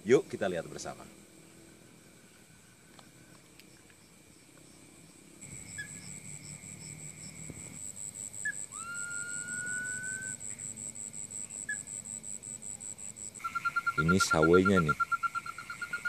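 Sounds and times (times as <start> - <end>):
night insects chirping: 0.0 - 16.0
rising whistle: 8.4 - 10.4.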